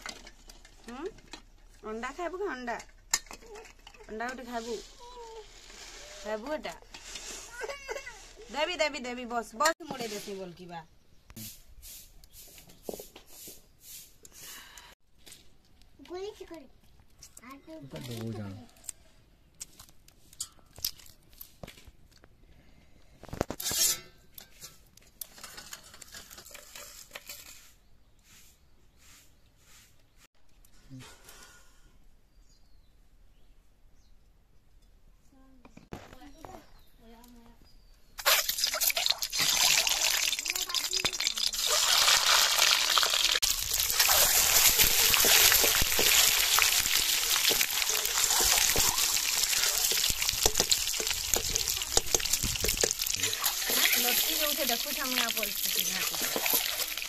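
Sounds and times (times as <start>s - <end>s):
eggshell cracking and peeling: 38.2s - 54.4s.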